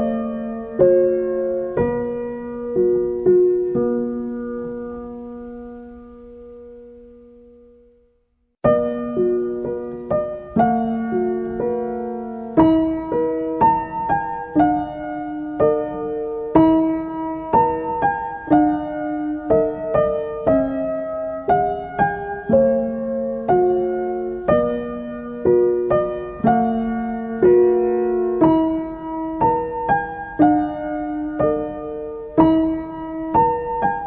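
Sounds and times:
slow gentle piano melody: 0.0 - 34.0.

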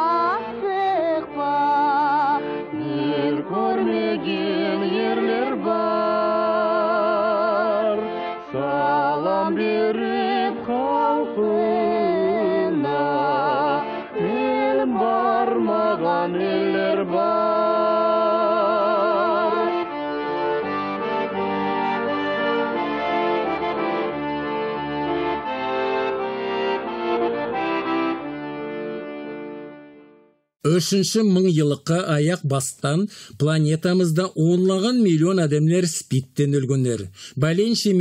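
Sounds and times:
held chords: 19.2 - 30.2.

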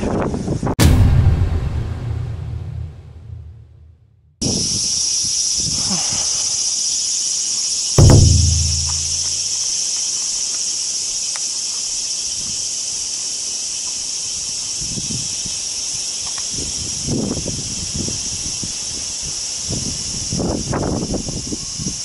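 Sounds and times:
insects chorus: 4.4 - 22.0
soft low thumps: 8.0 - 9.4.

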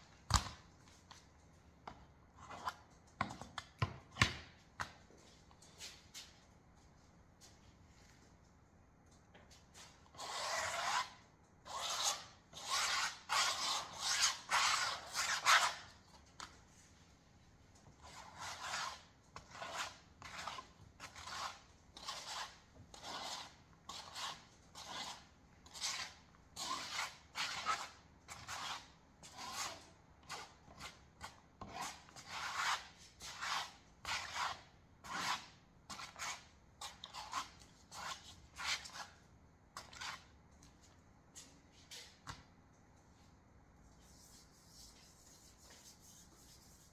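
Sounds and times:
comb rasping across wet paint: 9.8 - 16.5, 18.0 - 39.2, 39.8 - 40.4, 44.0 - 46.9.

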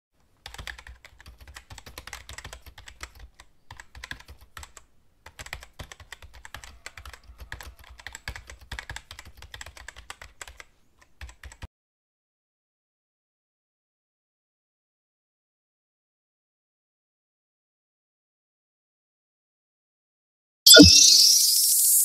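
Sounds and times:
keyboard typing: 0.4 - 11.7.

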